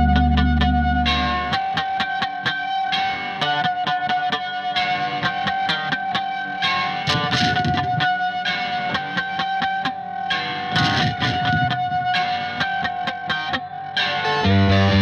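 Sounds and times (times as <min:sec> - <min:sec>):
electric guitar fast picking: 0:00.0 - 0:02.3
high guitar note ringing: 0:00.0 - 0:04.0.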